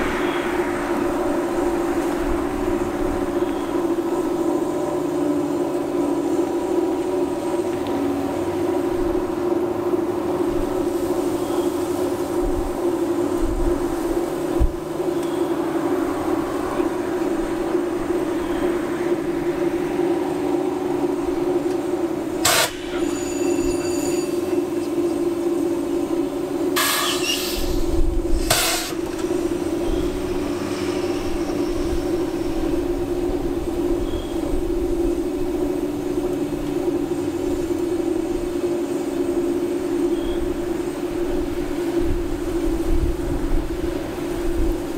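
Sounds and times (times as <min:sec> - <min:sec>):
diesel locomotive idling: 0:00.0 - 0:44.9
sharp metal clank: 0:22.4 - 0:24.4, 0:28.4 - 0:29.0
air hiss: 0:26.7 - 0:33.8.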